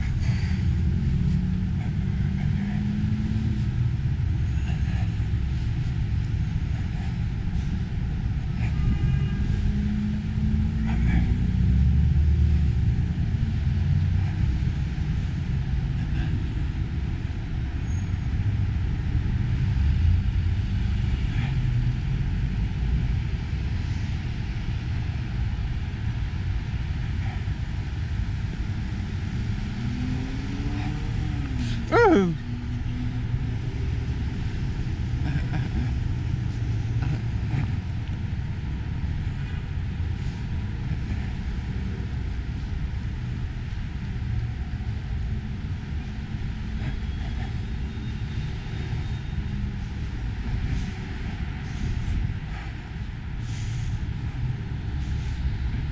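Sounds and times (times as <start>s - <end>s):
cars passing: 0.0s - 55.9s.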